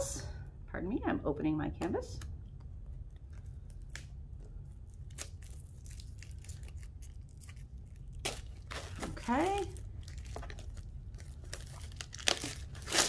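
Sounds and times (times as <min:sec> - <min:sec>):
plastic wrapping crinkling: 0:02.8 - 0:13.0.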